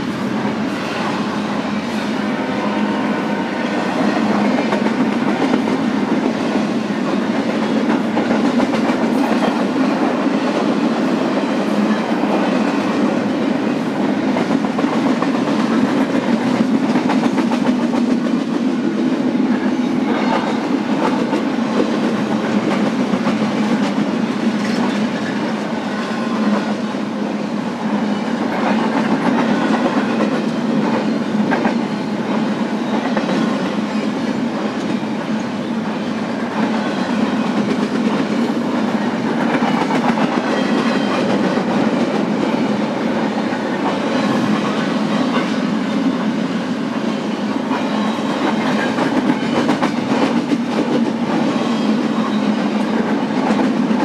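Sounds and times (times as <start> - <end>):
freight train rumbling past: 0.0 - 54.0.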